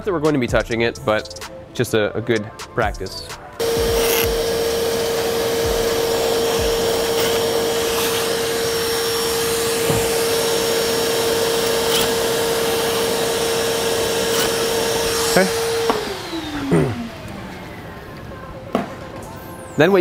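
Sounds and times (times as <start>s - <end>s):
vacuum cleaner humming: 3.6s - 20.0s.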